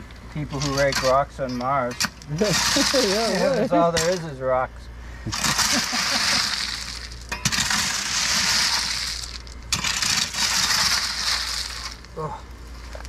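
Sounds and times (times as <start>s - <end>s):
rake scraping through rocks: 2.3s - 4.3s, 5.3s - 12.1s
stones grating and clinking: 5.3s - 12.2s.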